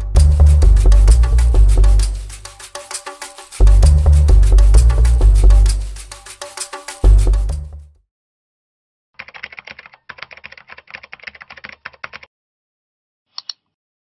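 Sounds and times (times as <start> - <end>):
music sting: 0.0 - 6.4
mouse double click: 13.3 - 13.7.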